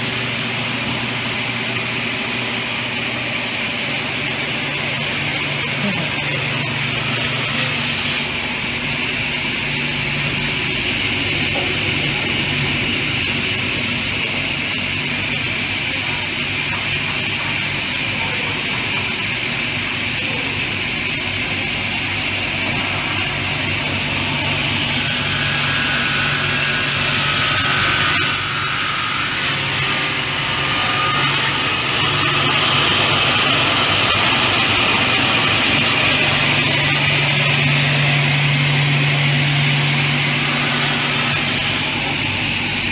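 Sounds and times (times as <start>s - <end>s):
saw motors whining: 0.1s - 16.0s, 19.6s - 42.9s
saw blades cutting aluminium: 2.0s - 16.0s, 22.5s - 42.9s.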